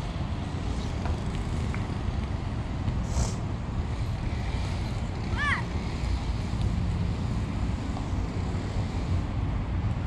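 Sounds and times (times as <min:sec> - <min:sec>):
road traffic rumble: 0:00.0 - 0:10.0
brief high hiss: 0:03.0 - 0:03.4.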